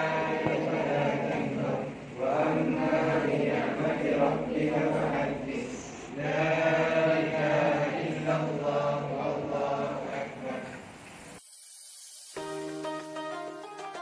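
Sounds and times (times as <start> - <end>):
voices chanting together: 0.0 - 10.9
faint hiss: 0.0 - 14.0.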